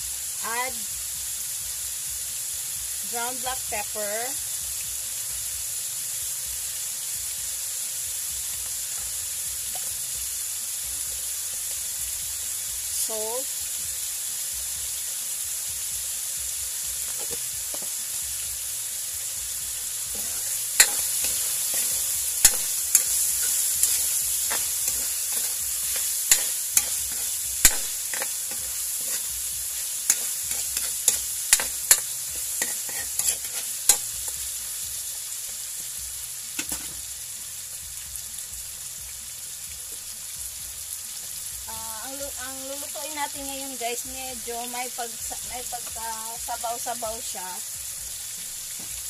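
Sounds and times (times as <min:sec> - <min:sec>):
chicken sizzling in hot oil: 0:00.0 - 0:49.0
ladle scraping a wok: 0:20.1 - 0:34.4.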